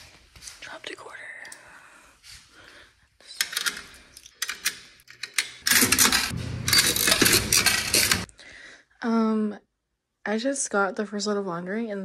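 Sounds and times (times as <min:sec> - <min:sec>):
coin slide clattering with coins: 0:03.4 - 0:08.3.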